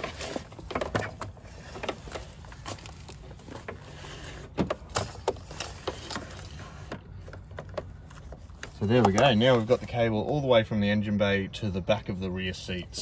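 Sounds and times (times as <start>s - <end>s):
cable rubbing under plastic trim: 0.0s - 10.1s.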